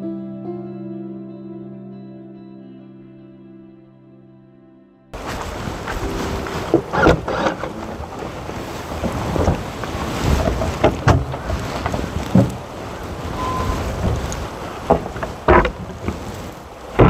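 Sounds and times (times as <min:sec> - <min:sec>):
wind buffeting microphone: 0:05.2 - 0:17.0.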